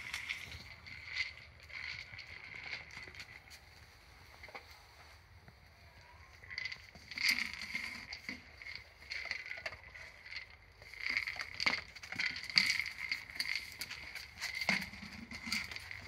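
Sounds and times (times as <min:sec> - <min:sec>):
rubber toy scraping on bricks: 0:06.7 - 0:16.0.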